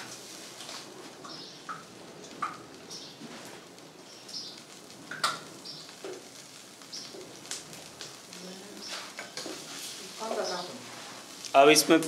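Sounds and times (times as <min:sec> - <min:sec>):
birds chirping: 0:01.2 - 0:03.3, 0:03.9 - 0:10.9.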